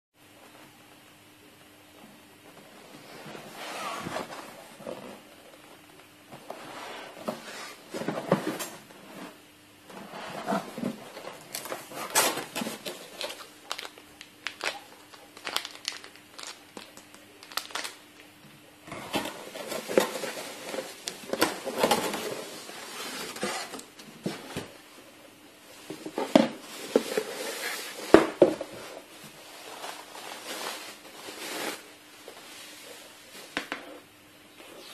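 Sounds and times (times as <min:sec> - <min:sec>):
faint steady hum: 0:00.2 - 0:34.9
plastic parts clattering: 0:10.5 - 0:18.0
packaging crinkling: 0:10.5 - 0:18.3.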